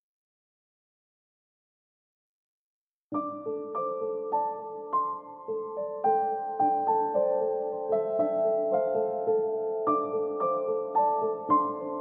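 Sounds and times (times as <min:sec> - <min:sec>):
gentle keyboard music: 0:03.1 - 0:12.0.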